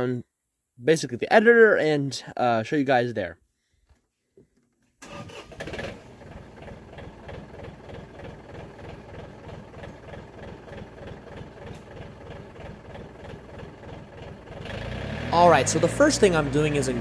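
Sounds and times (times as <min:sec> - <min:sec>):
diesel tractor engine idling: 0:05.0 - 0:17.0.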